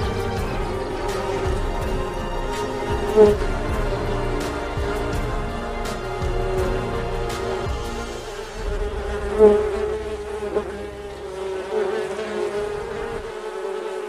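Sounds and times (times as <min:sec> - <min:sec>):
honeybees buzzing: 0:00.0 - 0:14.0.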